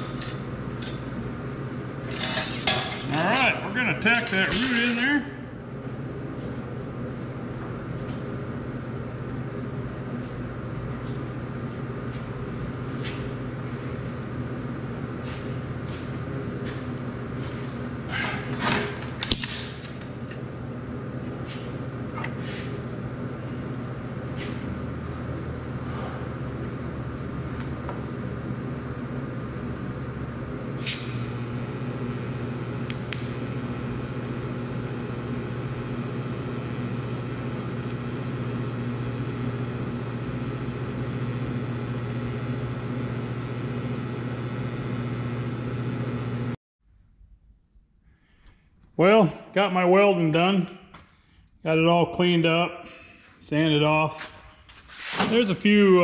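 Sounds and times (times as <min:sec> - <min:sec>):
low electrical hum: 0:00.0 - 0:56.0
welding arc: 0:30.8 - 0:45.3.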